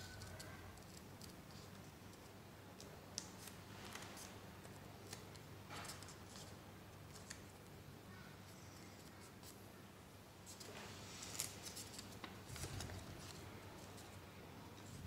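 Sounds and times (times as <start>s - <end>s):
paper rustling and creasing: 10.5s - 14.2s.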